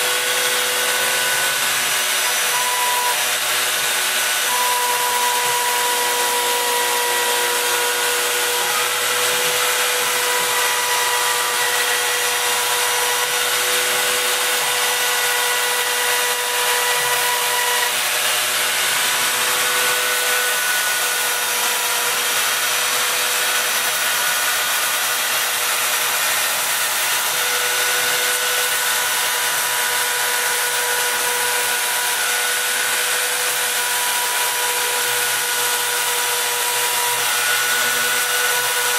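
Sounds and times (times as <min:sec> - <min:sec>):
whining cutting tones: 0:00.0 - 0:23.0
router spindle motor running: 0:00.0 - 0:38.9.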